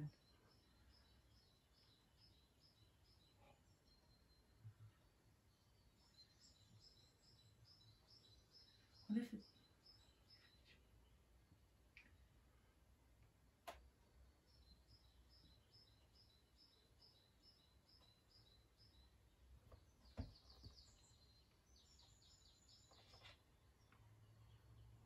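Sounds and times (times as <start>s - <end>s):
birds chirping and trilling: 0.0s - 12.4s, 13.9s - 25.0s
soft thump: 20.2s - 20.4s.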